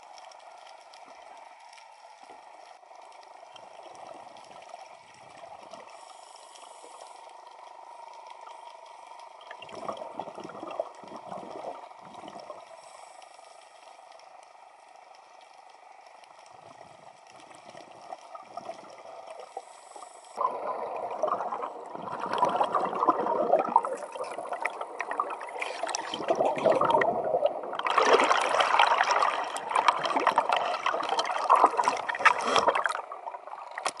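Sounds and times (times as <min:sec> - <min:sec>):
faint underwater hiss: 0:00.0 - 0:33.9
scuba bubbles rushing: 0:09.4 - 0:12.6, 0:20.4 - 0:33.8.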